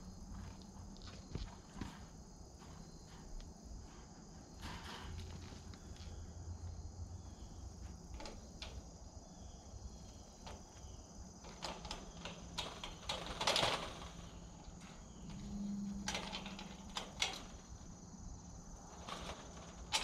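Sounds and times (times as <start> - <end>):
gate rattling scrape: 4.6 - 5.6, 11.4 - 18.0, 18.8 - 20.0
chain-link gate latch rattling: 11.4 - 14.7, 16.0 - 17.8, 18.9 - 20.0.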